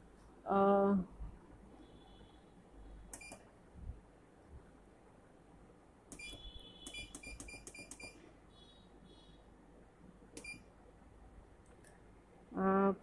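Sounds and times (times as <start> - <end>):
keypad beeps: 3.1 - 3.4, 6.1 - 8.2, 10.4 - 10.7.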